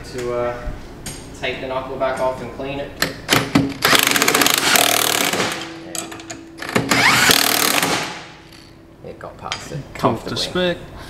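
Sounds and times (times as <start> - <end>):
impact wrench rattling: 3.3 - 8.7.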